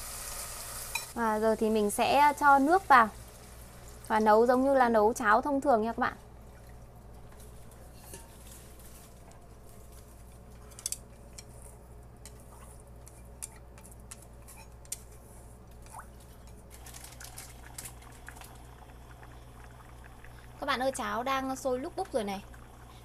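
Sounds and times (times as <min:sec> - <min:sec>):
steady low hum: 0:05.2 - 0:23.0
porridge bubbling: 0:05.8 - 0:23.0.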